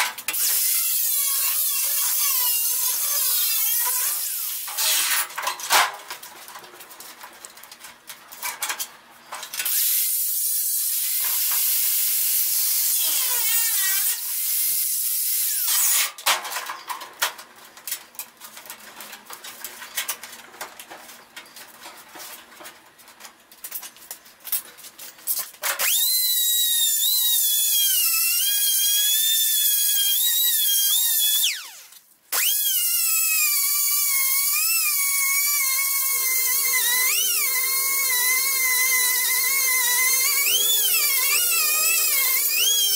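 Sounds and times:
cutoff grinder whining: 25.8s - 42.9s.

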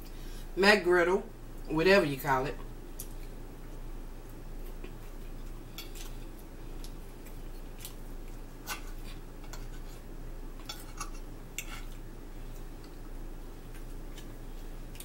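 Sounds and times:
steady low hum: 0.0s - 15.0s
fork clinking and scraping on plate: 8.6s - 10.0s, 10.6s - 12.0s.

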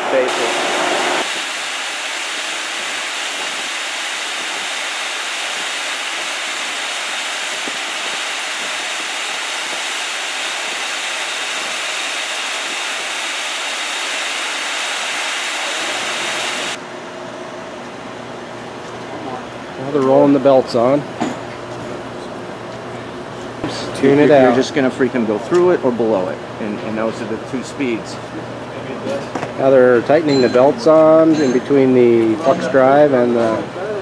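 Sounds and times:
industrial machinery hiss: 0.0s - 16.8s.

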